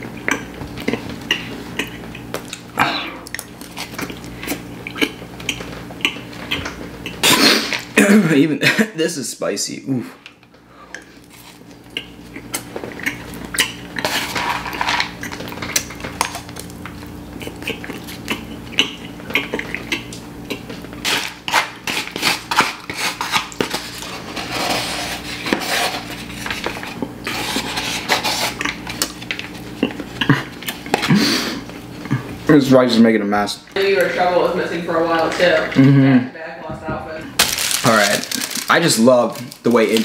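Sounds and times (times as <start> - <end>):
metal spoon scraping foam cup: 21.9 - 26.2.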